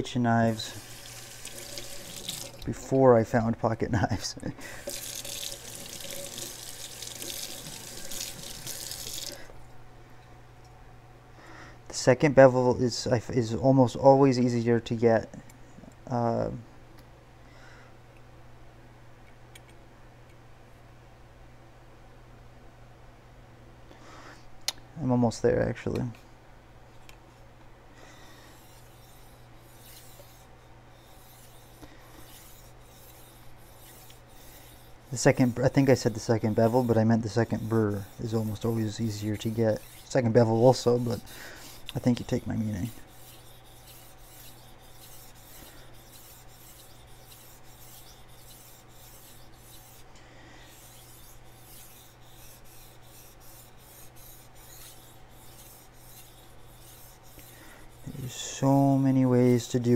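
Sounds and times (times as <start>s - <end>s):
knife rasping on whetstone: 4.8s - 9.4s, 28.4s - 59.9s.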